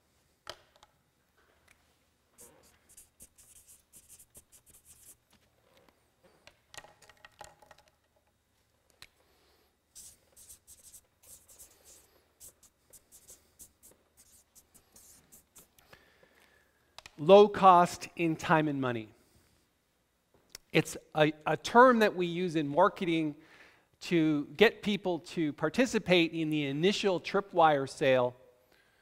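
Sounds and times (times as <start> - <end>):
marker pen scratching on board: 2.4 - 5.2, 9.9 - 15.8.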